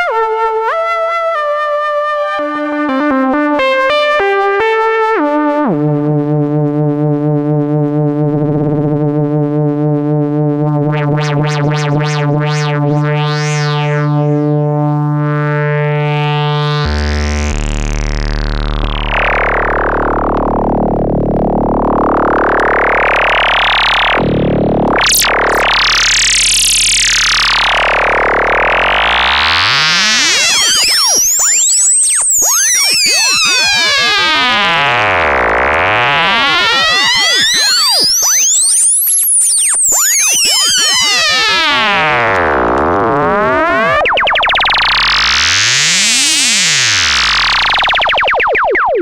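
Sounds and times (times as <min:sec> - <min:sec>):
analog synthesizer notes: 0:00.0 - 0:49.0
low synthesizer drone: 0:05.7 - 0:49.0.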